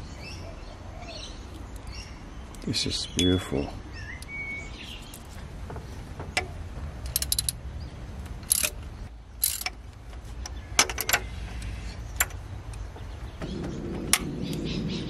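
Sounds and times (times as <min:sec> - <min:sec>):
ratchet wrench clicking: 0:07.0 - 0:07.6, 0:08.4 - 0:08.8, 0:09.4 - 0:09.8.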